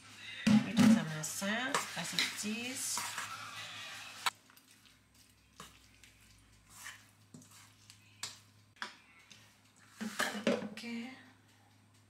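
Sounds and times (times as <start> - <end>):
metal spoon scraping metal bowl: 1.7 - 4.1.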